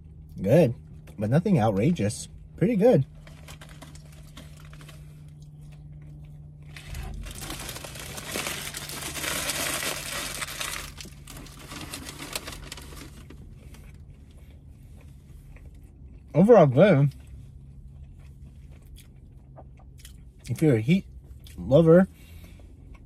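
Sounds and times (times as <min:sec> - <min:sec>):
faint low hum: 0:00.0 - 0:23.0
paper wrapper crinkling: 0:03.1 - 0:05.2, 0:06.7 - 0:13.4.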